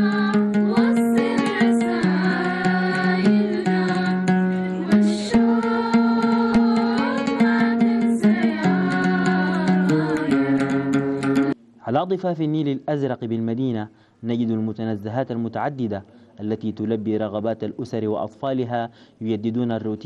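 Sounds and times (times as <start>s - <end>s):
oud melody: 0.0s - 11.6s
person singing: 0.0s - 11.6s.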